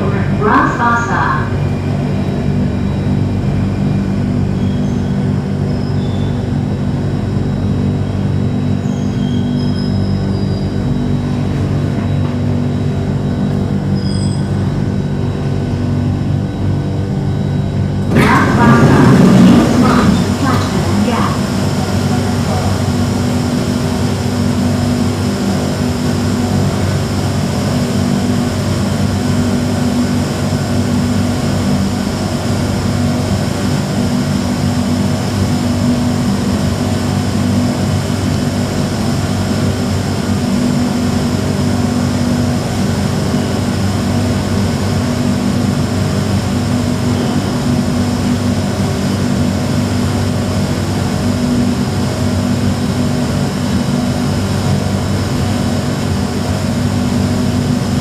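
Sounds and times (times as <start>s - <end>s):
train mechanical hum: 0.0s - 58.0s.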